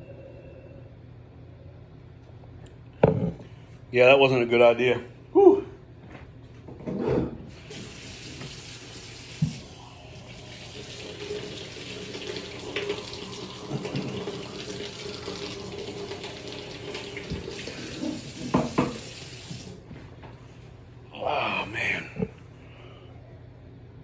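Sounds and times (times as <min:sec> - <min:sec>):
water running from a tap into a sink: 0:07.5 - 0:19.9.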